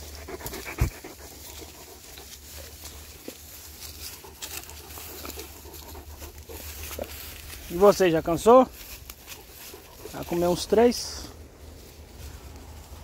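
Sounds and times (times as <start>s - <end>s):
dog chewing: 0.0s - 7.4s
grass and dry leaves rustling: 0.0s - 13.0s.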